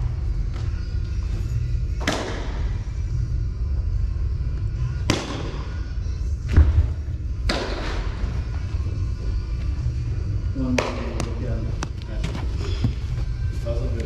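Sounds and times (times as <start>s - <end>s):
steady low hum: 0.0s - 14.0s
ball impacts with echo: 2.0s - 2.8s, 5.0s - 5.8s, 6.4s - 8.4s, 10.6s - 12.0s.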